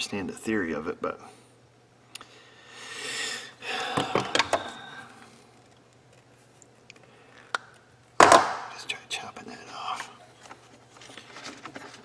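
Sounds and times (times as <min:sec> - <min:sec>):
small tools rustling: 0:10.2 - 0:12.0.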